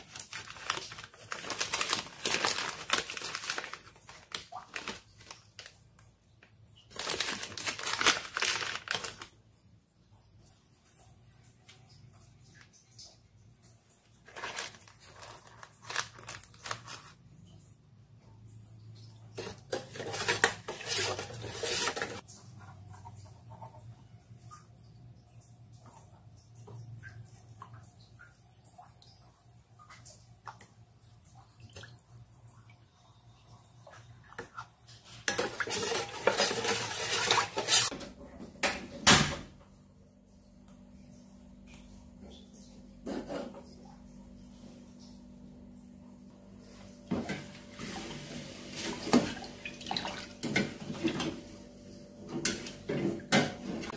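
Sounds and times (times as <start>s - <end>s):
spoon scooping from crinkly packet: 14.2s - 17.2s
metal spoon scraping pot: 19.4s - 22.2s.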